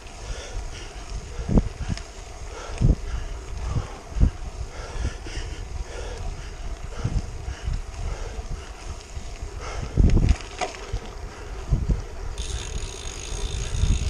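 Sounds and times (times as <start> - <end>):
bike tyres on wet road: 0.0 - 14.0
wind buffeting microphone: 0.0 - 14.0
steady high whir: 12.2 - 14.0.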